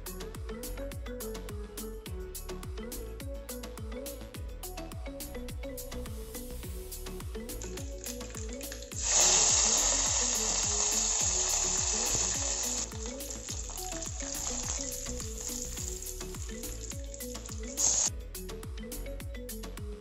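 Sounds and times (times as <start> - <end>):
hot oil sizzling: 7.6 - 18.1.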